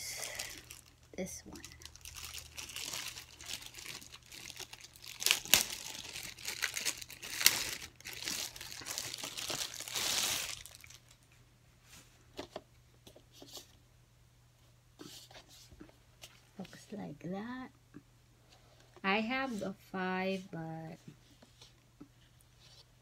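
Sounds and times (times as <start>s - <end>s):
plastic bag crinkling: 0.2s - 11.2s.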